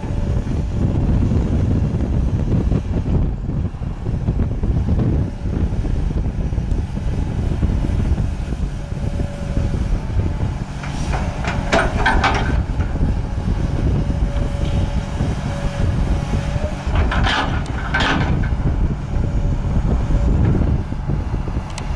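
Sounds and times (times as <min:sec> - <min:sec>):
excavator diesel engine rumbling: 0:00.0 - 0:21.9
metal clanking: 0:10.8 - 0:13.0, 0:16.9 - 0:18.6.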